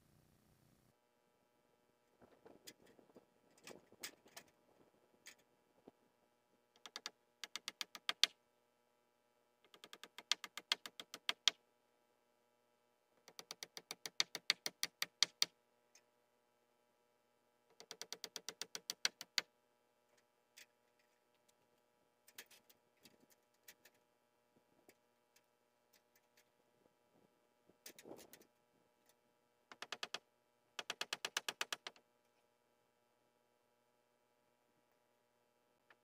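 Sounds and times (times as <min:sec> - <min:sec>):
screws driven into metal roofing: 0:29.7 - 0:30.2, 0:30.8 - 0:32.0.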